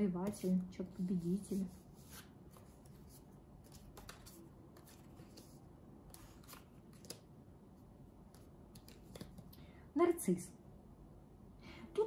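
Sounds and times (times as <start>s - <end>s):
cards clicking and rustling: 3.6s - 7.3s, 8.3s - 9.6s.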